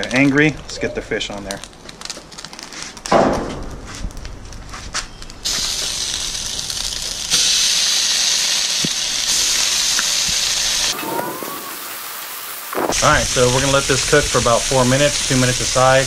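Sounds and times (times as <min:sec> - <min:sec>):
hot oil crackling: 0:00.0 - 0:16.0
fish fillets sizzling: 0:05.4 - 0:16.0.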